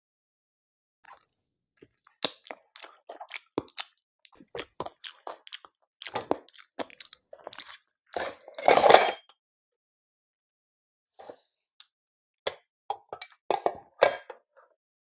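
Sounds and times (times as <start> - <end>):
chewing and crunching food: 1.0 - 8.8.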